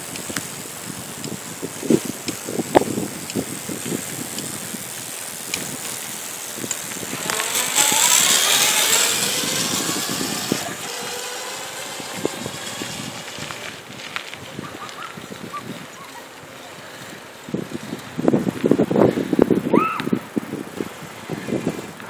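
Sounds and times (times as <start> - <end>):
electric motor whining: 0.0 - 16.0
rush of noise: 0.0 - 22.0.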